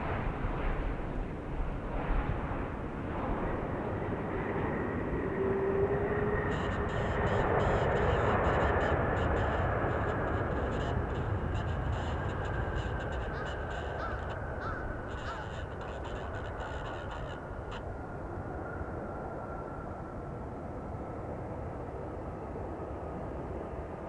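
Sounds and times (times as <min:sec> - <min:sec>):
jet engines rumbling: 0:00.0 - 0:24.0
engine whine spooling down: 0:02.7 - 0:20.4
crows cawing: 0:09.2 - 0:17.8.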